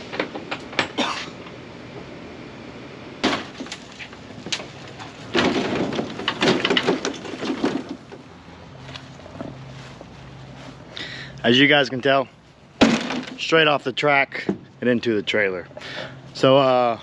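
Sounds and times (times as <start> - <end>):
low steady hum: 0.0 - 17.0
metal stand rattling on ramp: 3.2 - 8.3.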